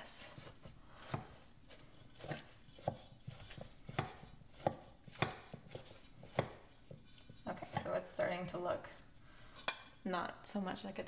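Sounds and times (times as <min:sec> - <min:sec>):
spoon stirring soil: 0:00.2 - 0:10.0.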